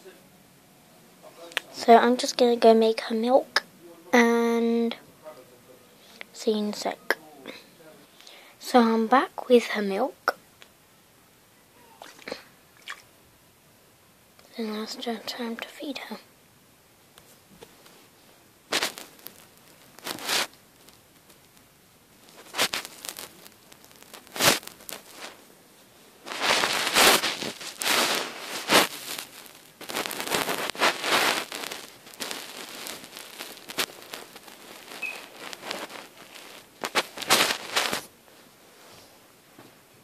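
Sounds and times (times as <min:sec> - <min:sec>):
fabric brushing against microphone: 0:17.3 - 0:20.6, 0:22.2 - 0:39.2.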